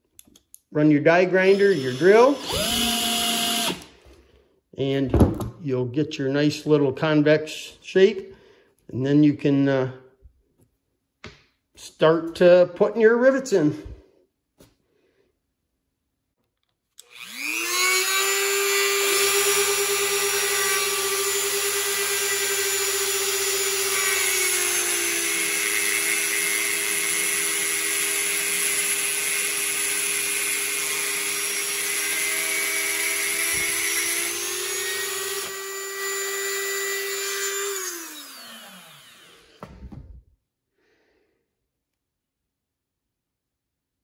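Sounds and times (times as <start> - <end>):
rotary tool grinding whine: 1.4 - 3.9, 17.0 - 39.6
cordless drill humming: 1.4 - 4.1, 17.0 - 39.7.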